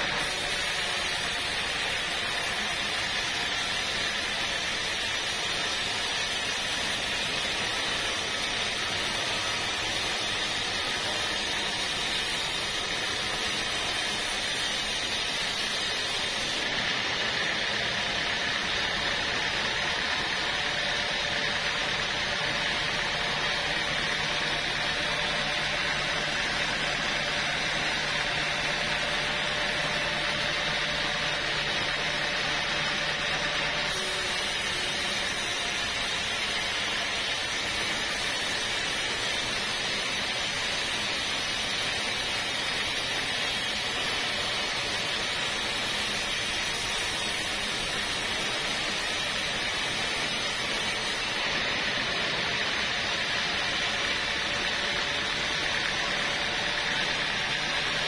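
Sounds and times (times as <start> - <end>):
high hiss: 0.0 - 16.9, 33.7 - 54.8
band saw cutting wood: 0.0 - 58.0.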